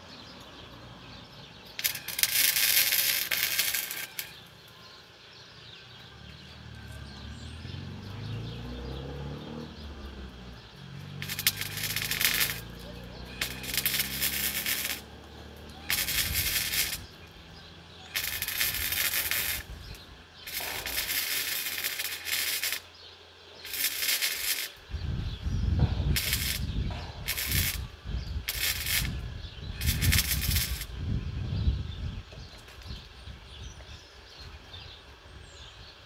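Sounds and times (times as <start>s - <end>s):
welding arc crackling and hissing: 1.7s - 4.6s, 10.1s - 23.0s, 23.6s - 31.2s.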